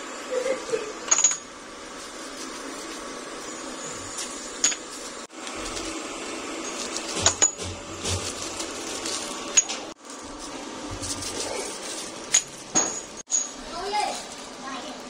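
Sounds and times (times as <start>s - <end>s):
workshop hum: 0.0s - 15.0s
metal parts clinking: 1.1s - 1.5s.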